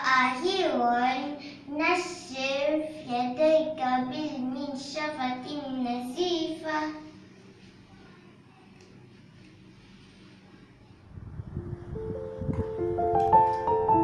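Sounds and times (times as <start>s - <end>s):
girl reciting in sing-song voice: 0.0s - 7.2s.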